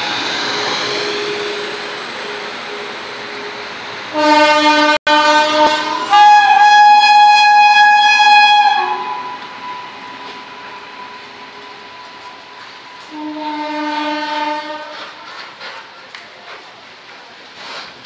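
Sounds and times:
rumble of passing freight train: 0.0 - 18.0
locomotive horn blasts: 4.1 - 9.6, 13.0 - 15.3.

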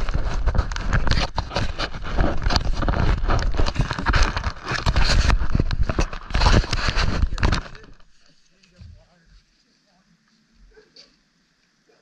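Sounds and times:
camera handling knocks and rubbing: 0.0 - 8.1.

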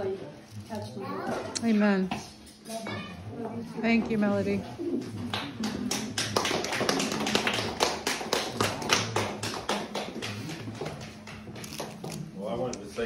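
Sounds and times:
people applauding: 5.2 - 12.2.

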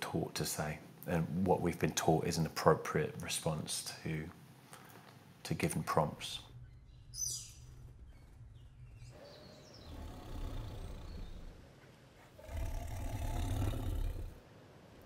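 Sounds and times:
tiger growling: 7.7 - 11.6, 12.3 - 14.4.

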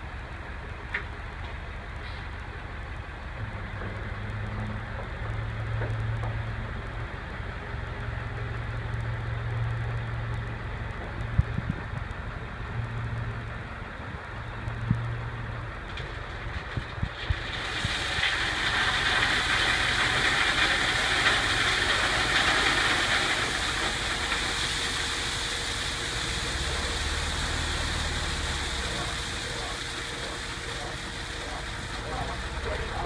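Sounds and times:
truck engine running: 0.0 - 33.0
crushed rock pouring out: 16.2 - 33.0.

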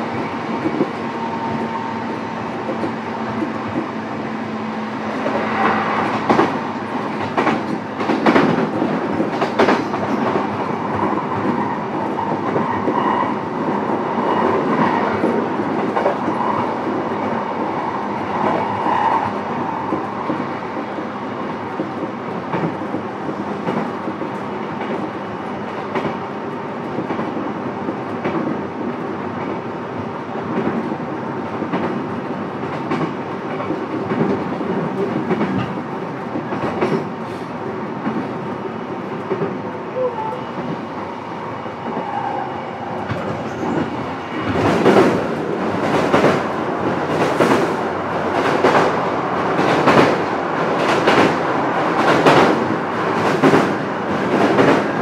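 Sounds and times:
clickety-clack over rail joints: 0.0 - 40.9, 41.8 - 55.0
train wheels rumbling on rail: 0.0 - 55.0.

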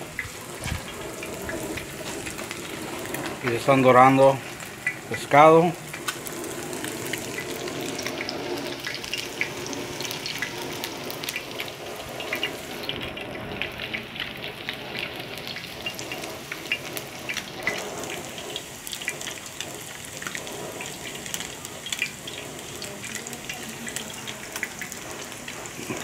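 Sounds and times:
fish deep-frying in oil: 0.0 - 26.0.

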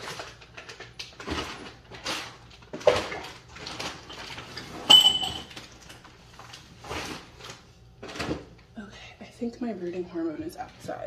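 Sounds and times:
sharp ringing clink: 4.9 - 5.5.

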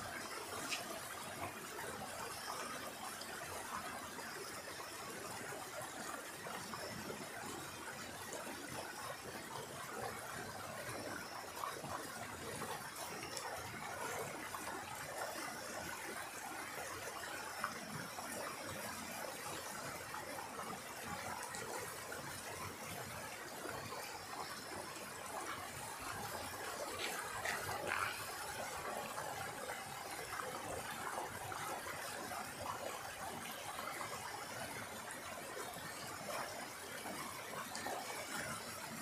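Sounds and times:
stream rushing over rocks: 0.0 - 39.0.

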